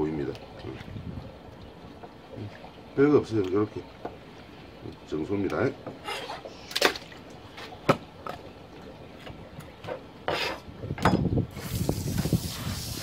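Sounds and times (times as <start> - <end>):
knife on plastic cutting board: 10.3 - 10.6
hose spray hissing: 11.5 - 13.0.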